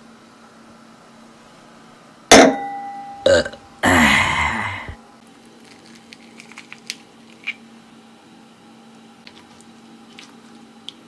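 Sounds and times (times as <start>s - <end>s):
person burping loudly: 3.2s - 5.0s.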